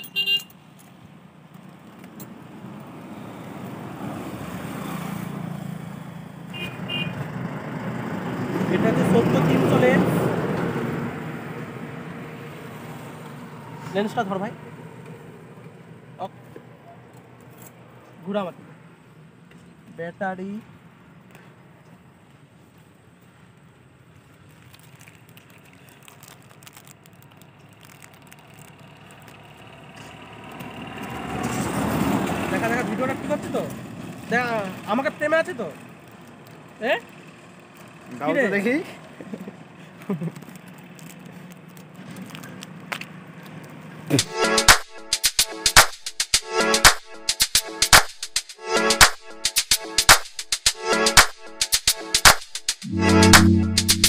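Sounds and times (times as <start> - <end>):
vehicle engine and tyre noise: 0.0 - 44.2
vehicle engine approaching: 7.2 - 16.2, 28.1 - 35.0.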